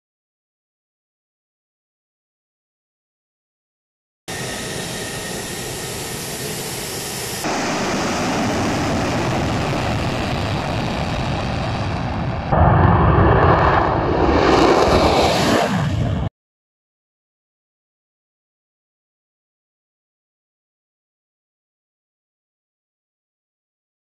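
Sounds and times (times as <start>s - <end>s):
jet engines roaring: 4.3s - 16.3s
heavy low rumble: 7.5s - 16.3s.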